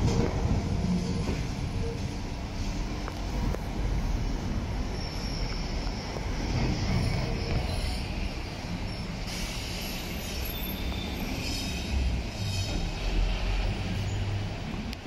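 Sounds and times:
tram rolling on track: 0.0s - 15.0s
vans driving past: 0.0s - 15.0s
tram wheels squealing: 3.8s - 14.7s.

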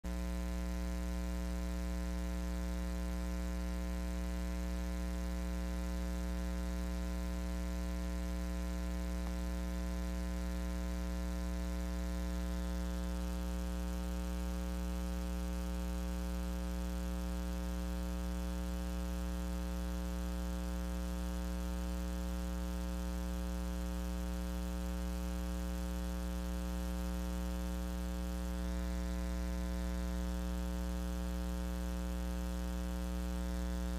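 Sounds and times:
electrical mains hum: 0.1s - 33.9s.

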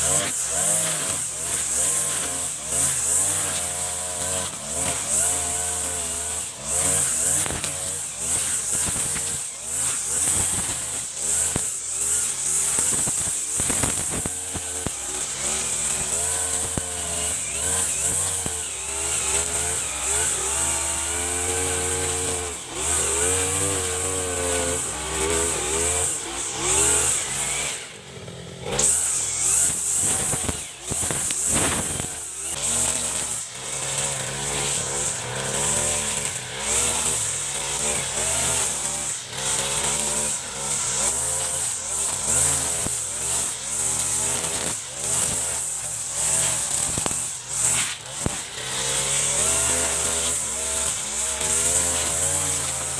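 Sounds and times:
brush cutter engine cutting grass: 0.0s - 52.9s.

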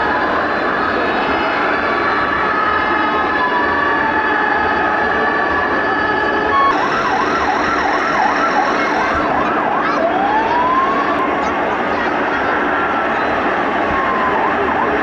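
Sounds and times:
electronic toy sirens: 3.2s - 11.5s.

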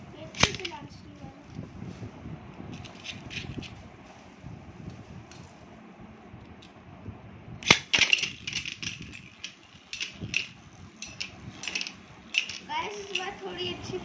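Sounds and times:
spinning top landing clack: 0.3s - 0.8s, 7.6s - 13.4s
spinning tops clashing clicks: 0.3s - 0.8s, 7.6s - 13.4s
spinning top whirring: 7.6s - 14.0s.

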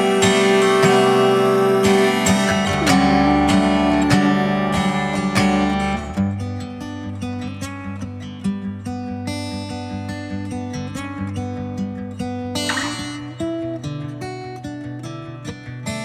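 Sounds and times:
acoustic guitar chords: 0.0s - 16.0s.

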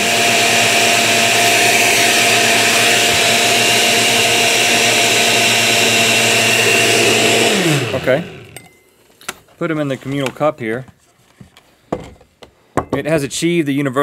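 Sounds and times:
blender motor running: 0.0s - 8.6s.

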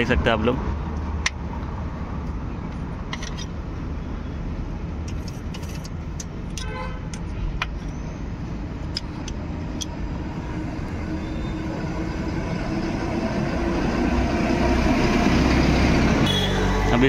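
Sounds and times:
vehicle engine running: 8.6s - 17.0s.

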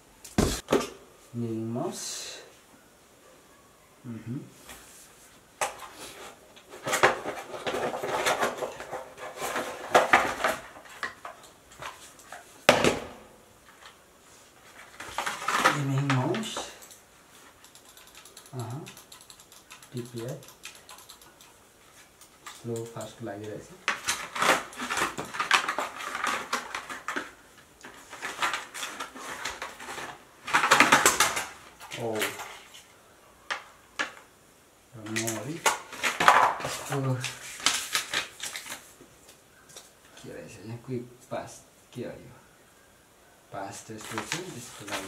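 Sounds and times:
cardboard and plastic packaging rustling: 4.6s - 17.6s, 21.8s - 34.2s, 35.0s - 40.3s, 43.7s - 45.0s.

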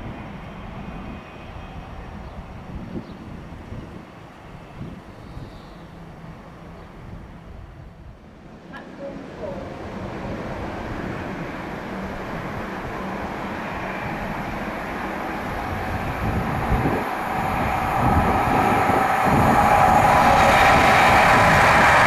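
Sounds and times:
train wheels on rails: 8.5s - 22.0s.

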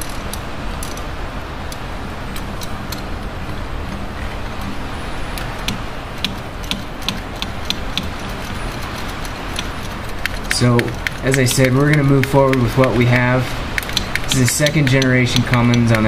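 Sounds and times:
low background rumble: 0.0s - 16.0s
sharp clicks: 4.6s - 16.0s
wrench clinking on metal: 5.6s - 16.0s.

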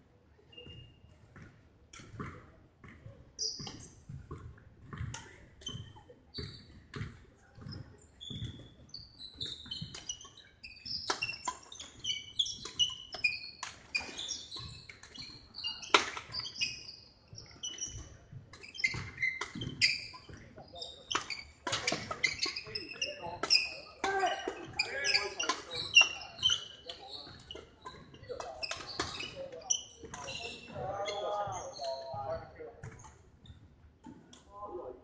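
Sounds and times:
shoes squeaking on wooden floor: 7.6s - 33.6s
racket hitting shuttlecock: 15.9s - 16.4s, 21.1s - 22.6s.

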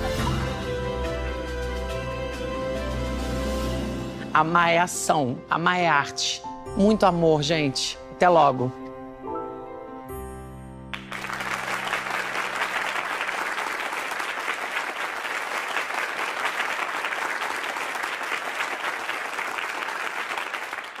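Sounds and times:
crowd applauding: 10.9s - 21.0s.

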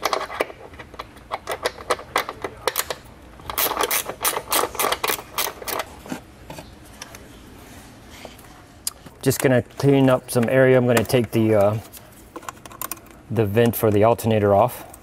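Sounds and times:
plastic housing clicking and rattling: 0.0s - 5.9s, 10.3s - 14.0s.

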